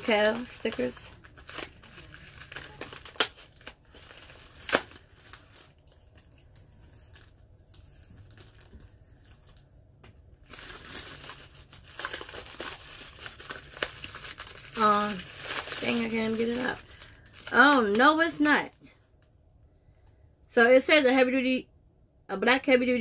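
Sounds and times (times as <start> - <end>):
packaging crinkling and tearing: 0.0 - 19.3.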